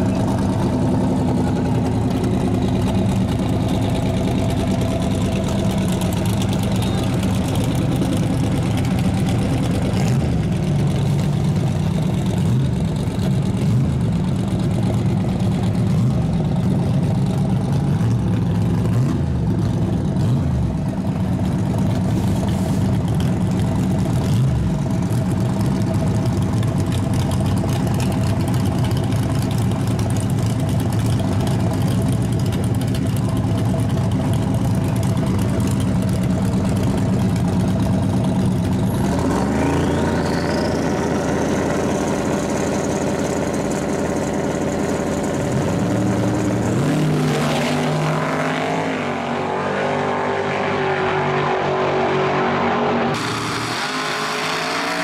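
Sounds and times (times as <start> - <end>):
truck engine idling: 0.0 - 47.0
vehicles launching away: 0.0 - 55.0
high turbo whine: 27.8 - 55.0.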